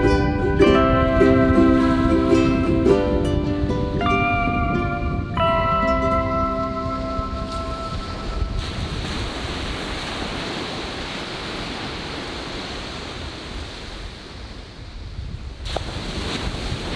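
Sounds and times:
music held notes: 0.0 - 9.0
waves breaking on beach: 0.0 - 16.9
wind buffeting microphone: 0.0 - 16.9.

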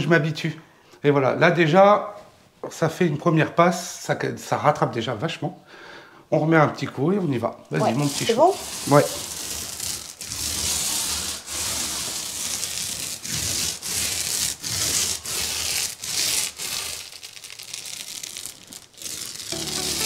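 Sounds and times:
blade scraping filler on wall: 7.8 - 17.2.

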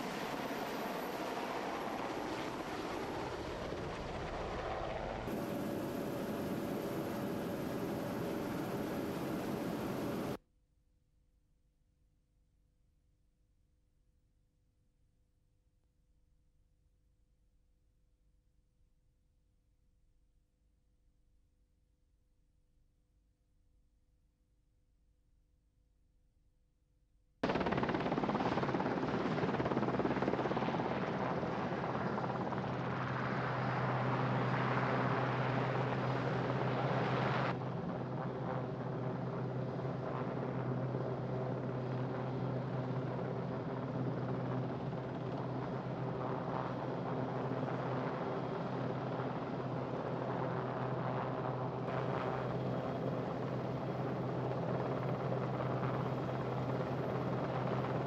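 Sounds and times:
helicopter rotors and turbines: 0.0 - 10.4, 27.4 - 58.0.

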